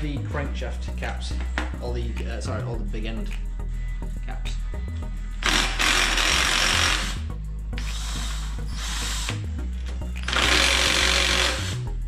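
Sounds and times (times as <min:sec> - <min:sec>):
cordless power tool spinning bolts: 0:05.4 - 0:07.2, 0:07.8 - 0:09.4, 0:10.2 - 0:11.8.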